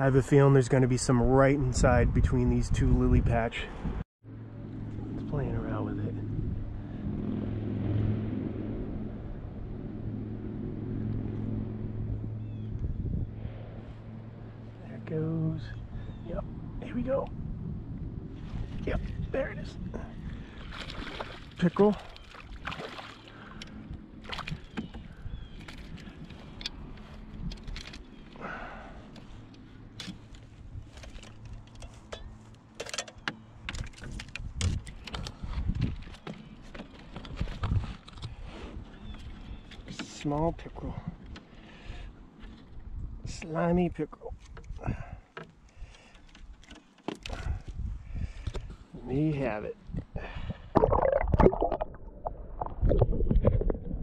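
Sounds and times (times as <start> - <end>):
distant motor droning: 4.3 - 18.8, 19.8 - 33.6.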